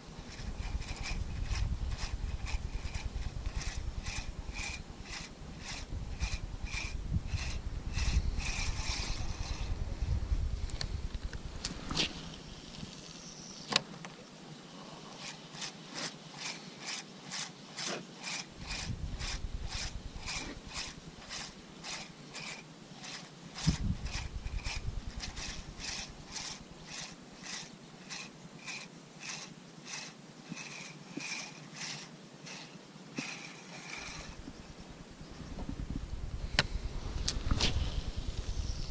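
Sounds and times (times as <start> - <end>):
fishing reel ticking: 0.2 - 9.8, 15.2 - 34.8
wind buffeting microphone: 0.2 - 12.2, 18.6 - 22.0, 23.6 - 26.8, 34.1 - 38.9.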